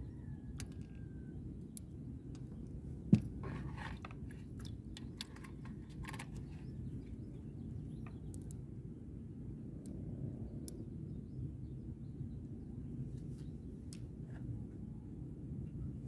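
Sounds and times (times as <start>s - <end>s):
steady low rumble: 0.0s - 16.0s
fishing reel clicks and rustles: 3.4s - 6.7s.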